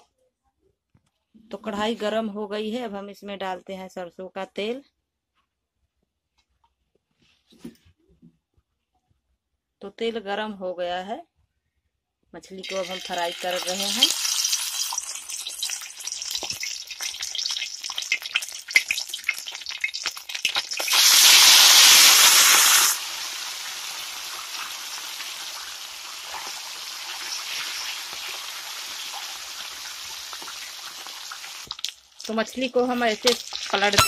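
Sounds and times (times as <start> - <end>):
fish frying in hot oil: 12.6 - 34.0.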